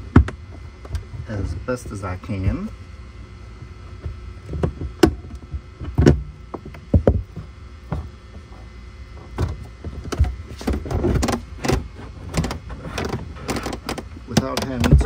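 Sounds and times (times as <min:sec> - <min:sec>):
knocks and thumps on trim panel: 0:09.3 - 0:15.0.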